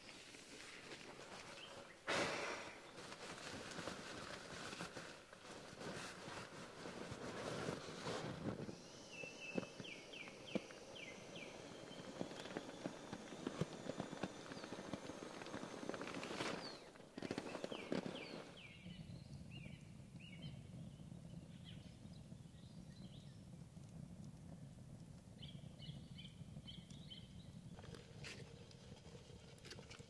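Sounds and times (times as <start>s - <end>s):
rush of air and fabric: 0.3s - 10.2s.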